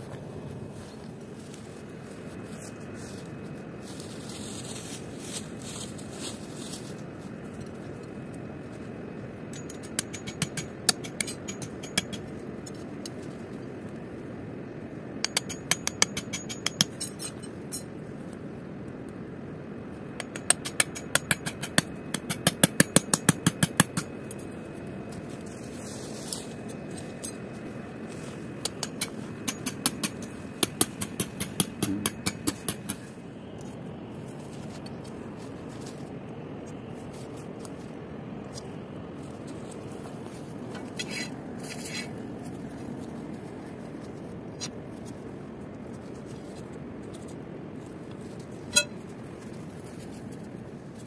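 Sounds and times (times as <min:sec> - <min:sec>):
rapid sharp tool strikes: 0:09.6 - 0:12.3, 0:15.2 - 0:17.8, 0:20.2 - 0:24.4, 0:28.6 - 0:33.1.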